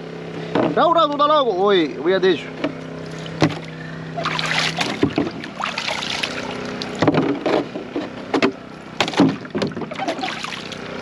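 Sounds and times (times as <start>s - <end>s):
steady low hum: 0.0s - 11.0s
sharp knocks: 3.4s - 3.7s, 7.0s - 10.1s.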